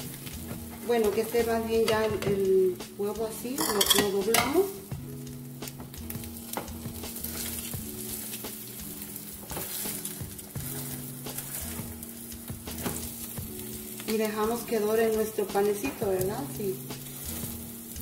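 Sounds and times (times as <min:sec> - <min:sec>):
egg sizzling in a pan: 0:00.0 - 0:18.0
metal spatula scraping a pan: 0:06.5 - 0:14.2, 0:17.0 - 0:17.7.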